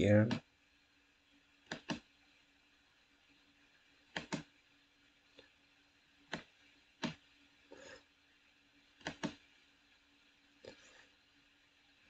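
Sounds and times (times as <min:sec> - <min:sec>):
faint room hum: 0:00.0 - 0:12.0
computer mouse clicks: 0:01.7 - 0:02.1, 0:04.1 - 0:04.5, 0:06.3 - 0:07.2, 0:09.0 - 0:09.4.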